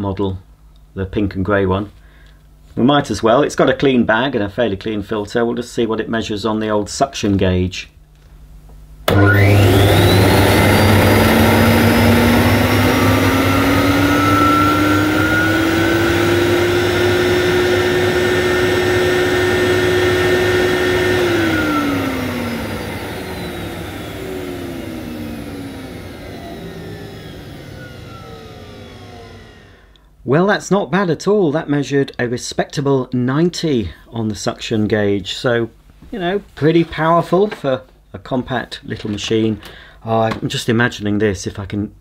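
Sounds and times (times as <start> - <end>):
vacuum cleaner motor whine: 9.1 - 30.0.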